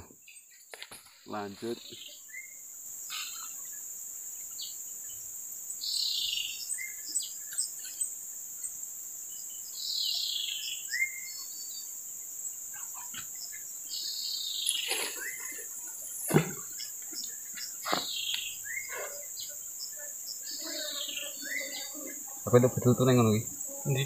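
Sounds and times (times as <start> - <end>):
insects droning: 0.0 - 24.0
short bird chirps: 13.5 - 19.3
bird falling calls: 14.0 - 19.4.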